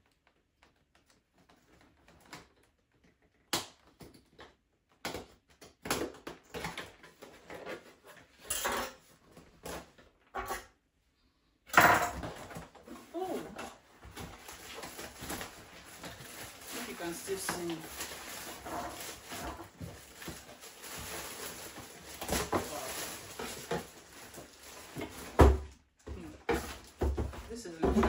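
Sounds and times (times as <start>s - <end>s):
cardboard flaps rustling: 12.2s - 28.0s.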